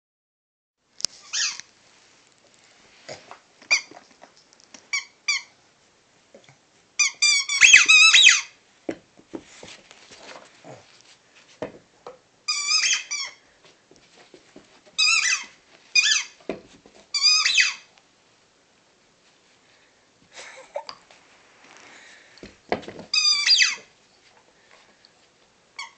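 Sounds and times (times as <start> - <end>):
squeaky dog toy squeaking: 1.2 - 1.6, 4.9 - 5.5, 7.0 - 8.5, 12.5 - 13.4, 15.0 - 16.4, 17.1 - 17.9, 23.1 - 23.9.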